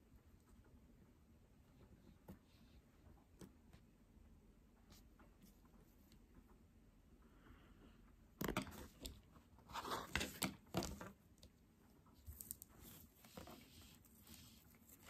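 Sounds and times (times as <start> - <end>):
crinkling handling noise: 8.4 - 15.0
rustling of materials: 8.4 - 15.0.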